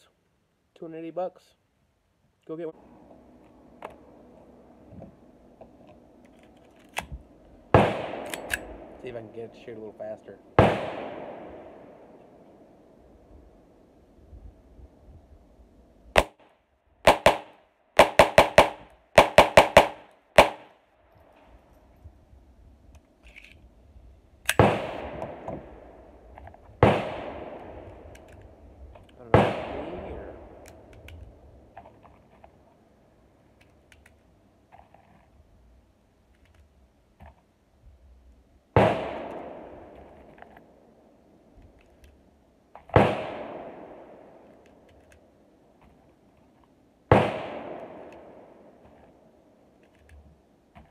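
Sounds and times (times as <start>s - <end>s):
pistol shots: 7.7s - 9.0s, 10.6s - 12.0s, 16.2s - 20.7s, 24.5s - 25.7s, 26.8s - 28.0s, 29.3s - 30.2s, 38.8s - 40.0s, 42.9s - 44.4s, 47.1s - 48.6s
gunshot with long echo: 7.7s - 9.4s, 10.6s - 12.2s, 24.6s - 26.1s, 26.8s - 28.0s, 29.3s - 30.6s, 38.8s - 40.2s, 42.9s - 44.4s, 47.1s - 48.8s
cartridges clicking into magazine: 8.2s - 8.7s.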